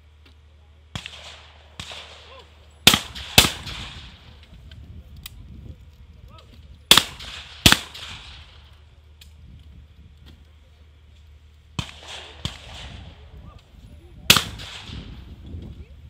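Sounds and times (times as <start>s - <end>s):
shotgun shots with echo: 0.9s - 4.3s, 6.9s - 8.7s, 11.8s - 13.3s, 14.3s - 15.3s.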